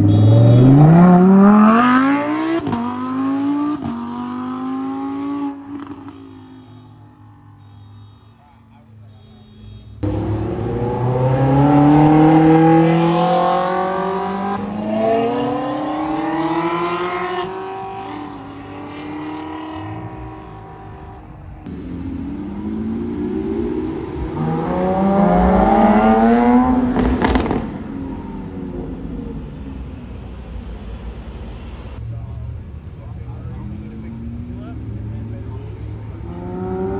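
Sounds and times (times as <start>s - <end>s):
car engine at full throttle: 0.0s - 6.2s, 10.0s - 36.9s.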